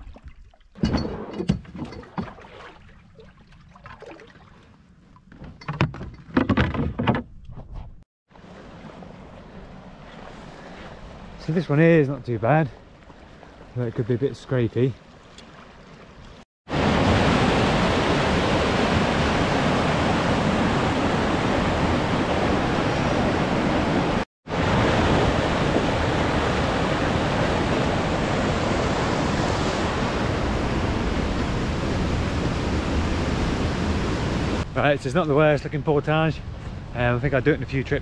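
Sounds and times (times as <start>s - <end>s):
waterfall and river rapids rushing: 16.7s - 34.6s.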